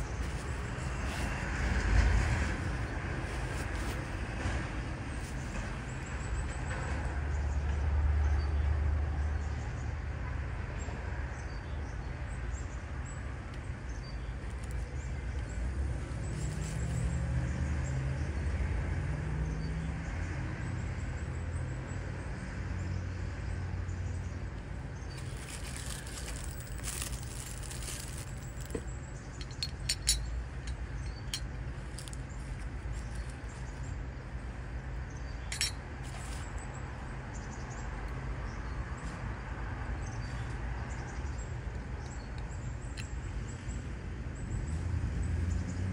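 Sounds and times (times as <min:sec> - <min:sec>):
cellophane crinkling: 0:25.1 - 0:28.8
glass and metal clinking: 0:29.4 - 0:32.1, 0:35.5 - 0:35.8.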